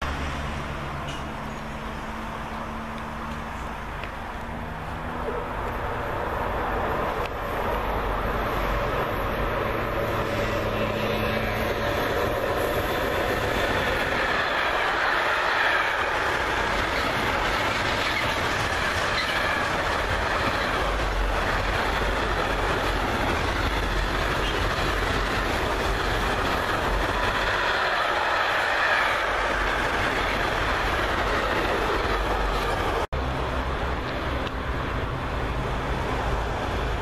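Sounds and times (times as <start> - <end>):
train wheels rushing on rail: 0.1 - 37.0
wagons clacking over rail joints: 9.8 - 33.1.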